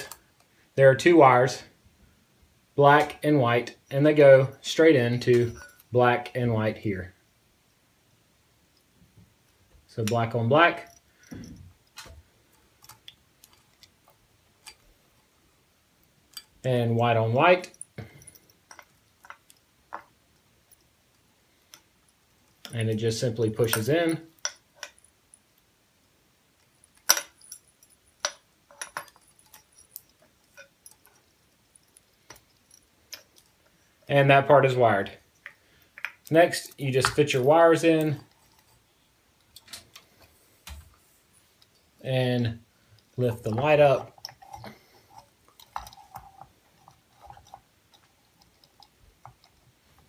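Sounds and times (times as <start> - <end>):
handling clicks and rustles: 2.8 - 6.5, 8.7 - 50.0
small metallic clinks: 3.8 - 6.0, 9.5 - 15.2, 16.0 - 16.9, 17.6 - 34.2, 34.9 - 40.4, 41.4 - 50.0.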